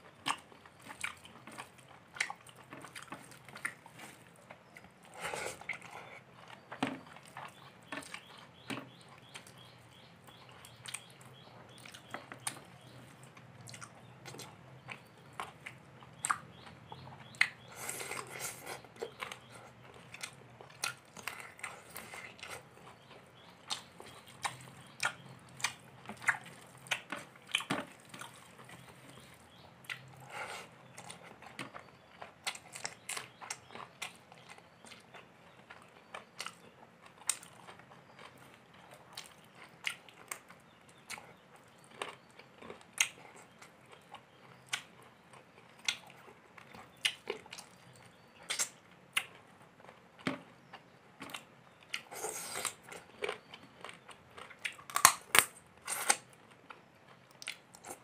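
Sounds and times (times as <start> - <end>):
person chewing with wet mouth clicks: 11.7 - 23.1, 23.7 - 30.1, 41.9 - 47.8, 48.4 - 49.4, 50.2 - 58.0.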